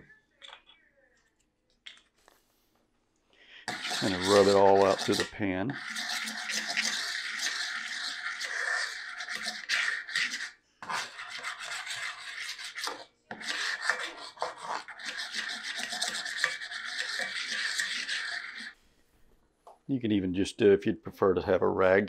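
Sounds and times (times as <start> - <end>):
spatula scraping cast iron skillet: 3.5 - 18.8.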